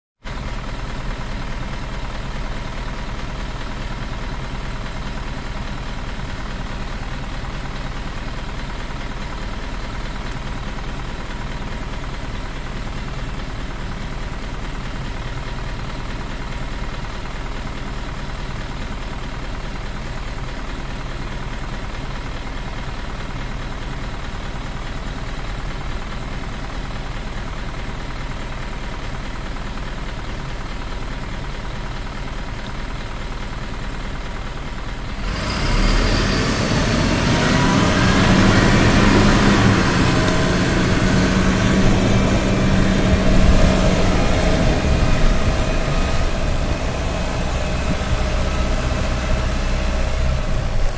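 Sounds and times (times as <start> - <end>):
diesel engine idling: 0.3 - 50.9.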